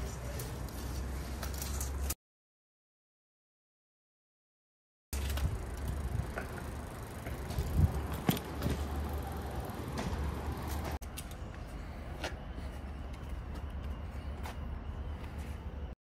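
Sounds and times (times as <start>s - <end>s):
outdoor background: 0.0s - 2.2s, 5.1s - 16.0s
wind rumble: 5.2s - 11.0s
bicycle rattling and knocking: 5.2s - 11.4s.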